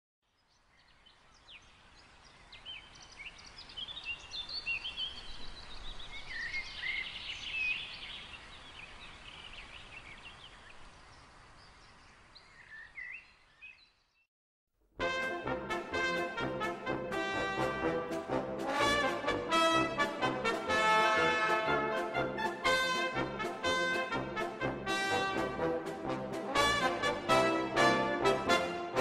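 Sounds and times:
faint woodland hiss: 0:00.4 - 0:14.2
songbirds chirping and whistling: 0:00.5 - 0:14.2.

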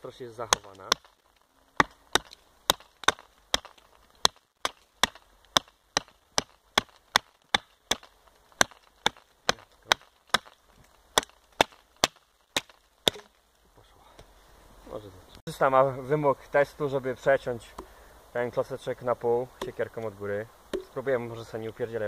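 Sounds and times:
hatchet chopping branch: 0:00.4 - 0:13.4, 0:19.6 - 0:19.8.

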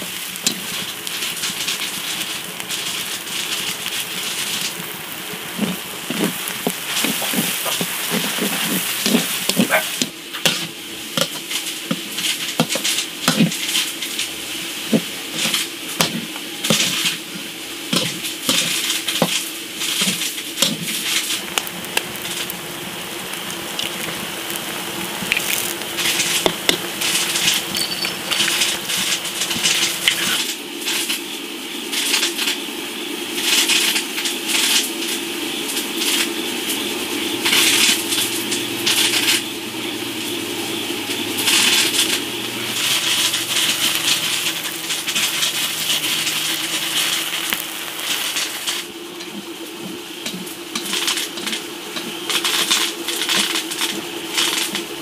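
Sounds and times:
noodles sizzling in a wok: 0:00.0 - 0:55.0
utensil scraping a pan: 0:05.5 - 0:14.2, 0:14.8 - 0:21.4.

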